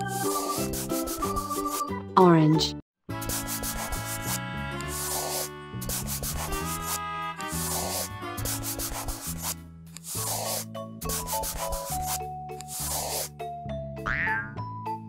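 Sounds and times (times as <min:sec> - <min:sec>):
pen scratching on paper: 0:00.0 - 0:01.8, 0:03.2 - 0:13.3
light children's music: 0:00.0 - 0:15.0.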